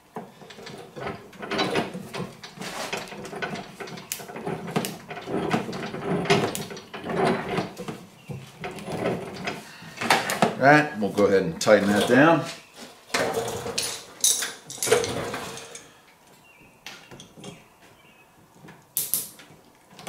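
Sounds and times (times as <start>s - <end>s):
rubber hose rubbing: 0.6s - 12.6s.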